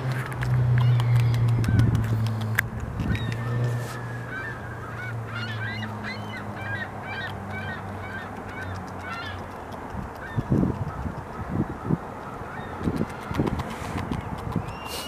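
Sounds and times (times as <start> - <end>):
beaver gnawing log: 0.0 - 4.3, 8.3 - 11.4, 12.1 - 15.0
geese honking: 3.1 - 9.4.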